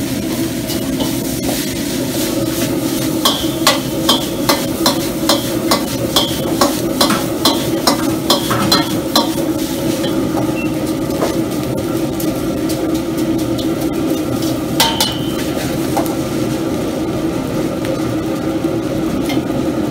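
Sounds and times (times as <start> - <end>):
food sizzling over gas flame: 0.0 - 19.9
metal ladle scraping a wok: 0.7 - 10.4.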